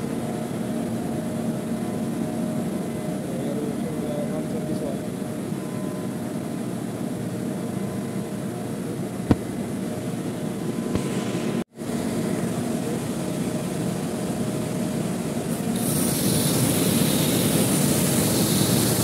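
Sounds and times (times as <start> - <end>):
air conditioner humming: 6.5 - 19.0.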